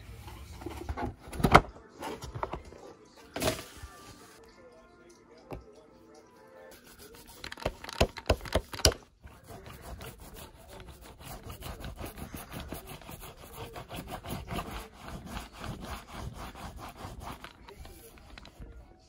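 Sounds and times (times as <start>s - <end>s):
foam roller rasping on canvas: 9.4s - 17.6s.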